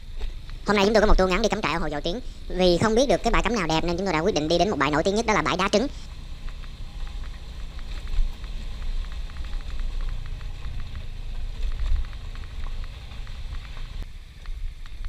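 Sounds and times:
wind rumble: 0:00.0 - 0:15.0
scooter riding on gravel: 0:05.1 - 0:15.0.

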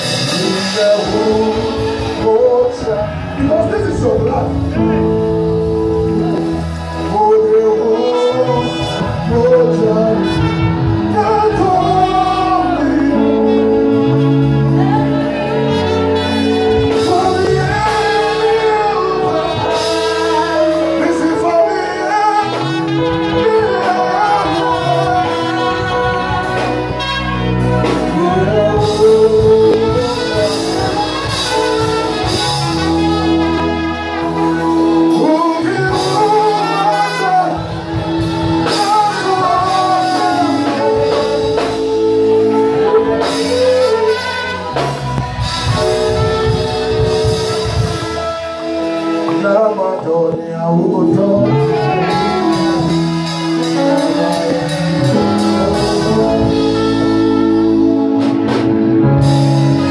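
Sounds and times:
held chords and bass: 0:00.0 - 0:59.9
person singing: 0:00.0 - 0:59.9
trumpet playing: 0:00.0 - 0:59.9.

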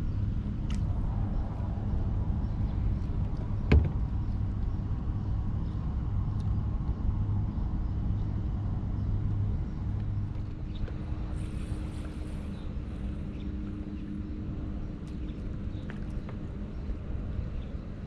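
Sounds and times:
low motor hum: 0:00.0 - 0:18.0
water: 0:00.0 - 0:18.0
wind rumble: 0:00.0 - 0:18.0
sharp knock: 0:03.7 - 0:04.0.

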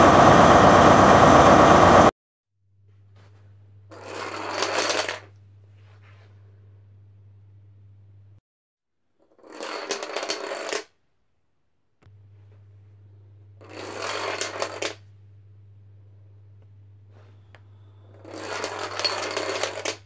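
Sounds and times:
steady low hum: 0:02.7 - 0:04.5, 0:05.2 - 0:08.4, 0:12.0 - 0:19.6
dominoes clattering on wooden floor: 0:03.9 - 0:05.3, 0:09.2 - 0:10.9, 0:13.6 - 0:15.0, 0:18.2 - 0:20.0.

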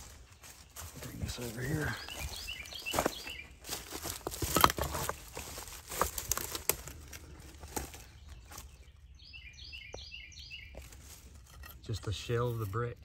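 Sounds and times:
footsteps crunching on dry leaves: 0:00.0 - 0:08.9, 0:10.4 - 0:11.5.

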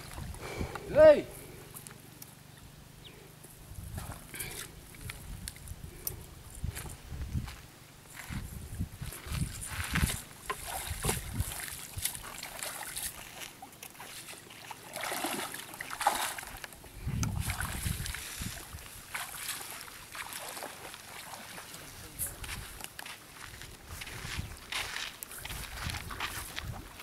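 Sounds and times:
water splashing and sloshing: 0:00.0 - 0:00.4, 0:09.0 - 0:27.0.

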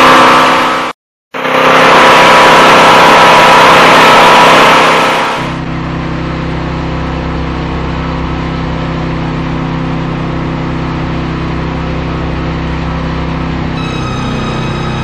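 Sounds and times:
saw cutting noise: 0:00.0 - 0:05.6
lawn mower engine running: 0:01.4 - 0:15.0.

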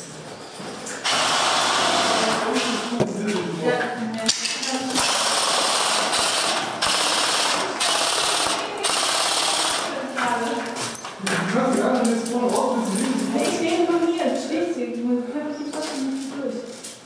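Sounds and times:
airsoft rifles firing full-auto: 0:05.0 - 0:09.9.

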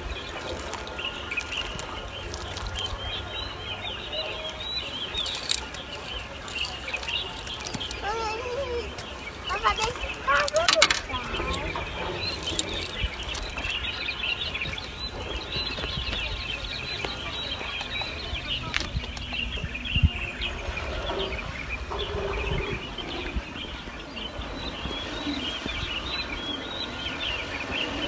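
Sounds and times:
birds chirping: 0:00.0 - 0:28.0
low rumble: 0:18.0 - 0:27.8.

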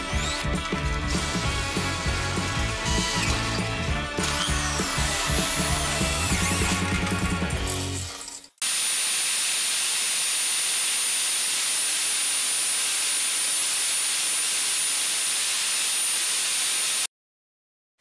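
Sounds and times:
angle grinder running free: 0:08.6 - 0:17.1.

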